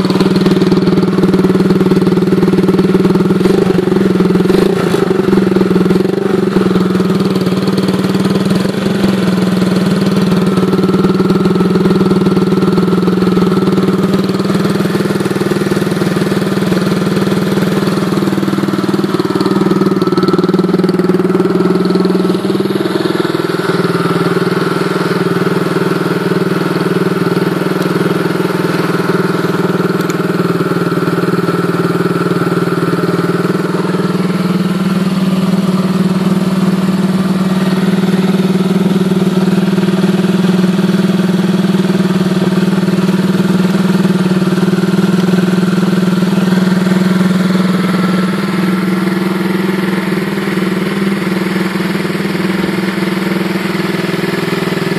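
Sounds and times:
motorcycle engine idling: 0.0 - 54.9.

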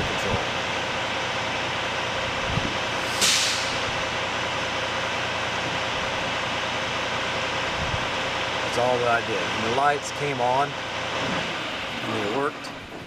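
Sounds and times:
short hiss of air: 3.0 - 4.0.

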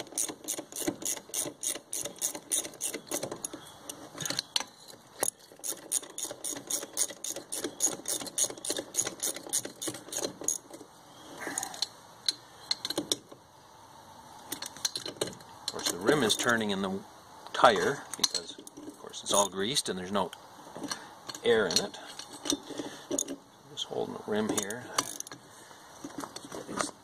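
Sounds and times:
socket ratchet clicking: 0.0 - 3.5, 5.2 - 10.6.

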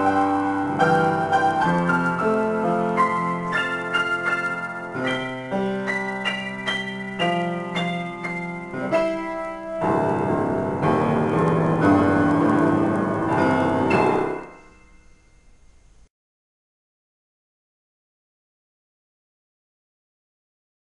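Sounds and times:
upright piano playing chords: 0.0 - 15.7.

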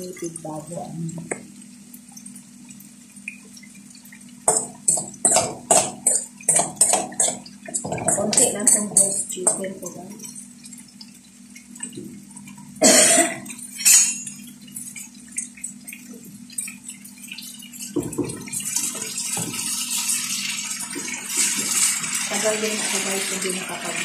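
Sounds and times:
utensils clicking against pan: 4.5 - 10.4
chicken sizzling in a pan: 16.7 - 24.0.

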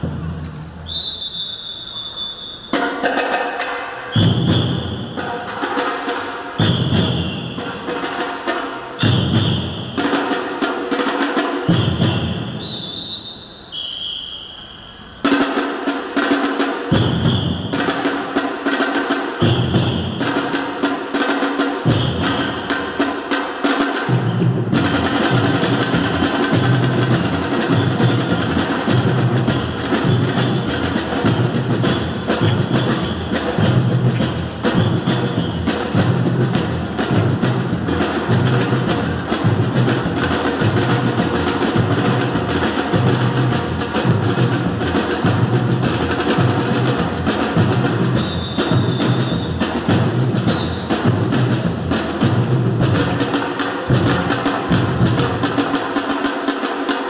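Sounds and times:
short high whistle blast: 0.8 - 3.0, 4.0 - 5.3, 6.6 - 8.0, 9.0 - 10.3, 11.7 - 15.3, 17.0 - 18.0, 19.4 - 20.6, 21.9 - 22.8, 31.8 - 33.7, 34.7 - 36.0, 48.1 - 49.7, 50.5 - 51.1
drums beating: 2.6 - 12.9, 15.0 - 57.0.

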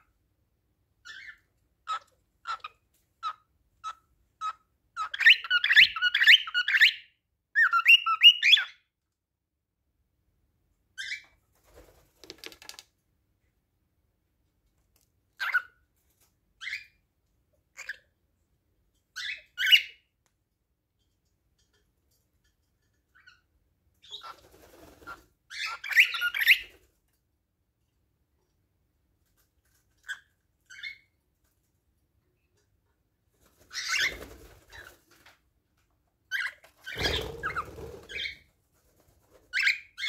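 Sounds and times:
cockatiel whistling song: 5.0 - 8.8, 25.5 - 26.7.

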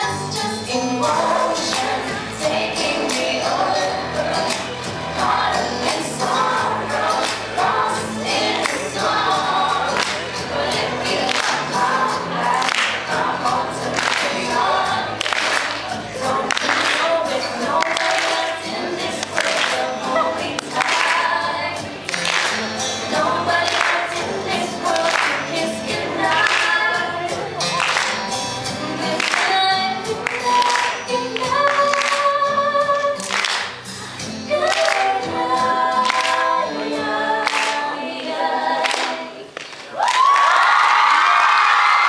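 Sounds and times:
backing music with a beat: 0.0 - 39.3
girls singing into microphones: 0.0 - 40.3
audience cheering: 39.8 - 42.0.

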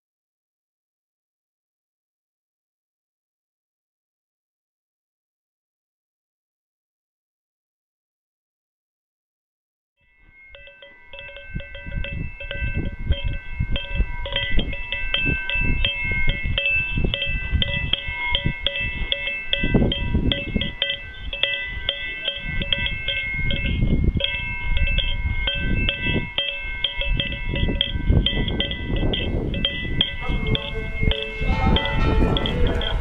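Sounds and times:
livestock bells clanking: 10.0 - 33.0
low rumbling: 27.2 - 33.0.

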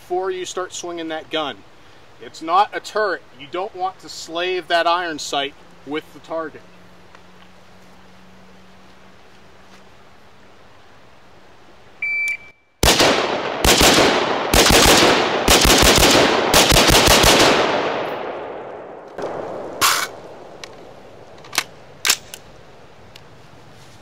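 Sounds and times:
shot timer beep: 12.0 - 12.7
rifle shots echoing: 12.8 - 22.3.

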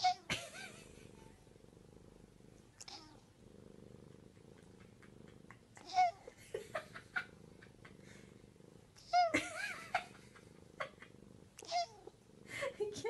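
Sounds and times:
cat meow: 0.0 - 0.3, 2.8 - 3.2, 5.8 - 6.4, 11.6 - 12.1
cat purring: 0.0 - 13.0.

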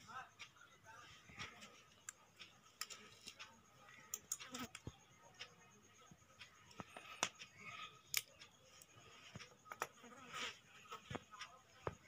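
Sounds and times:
small objects clicking on paper: 1.4 - 5.5, 6.5 - 10.1.

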